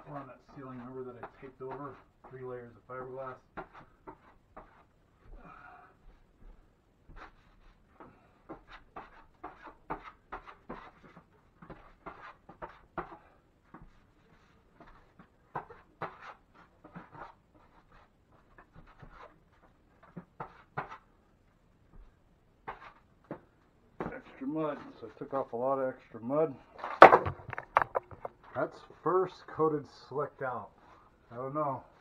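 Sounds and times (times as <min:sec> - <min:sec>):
drywall knife scraping compound: 0:00.1 - 0:02.4, 0:07.2 - 0:13.4, 0:14.3 - 0:21.1.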